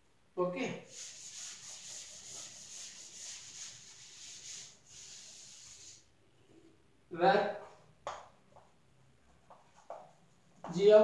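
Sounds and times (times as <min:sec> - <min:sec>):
duster rubbing blackboard: 0:00.8 - 0:06.1.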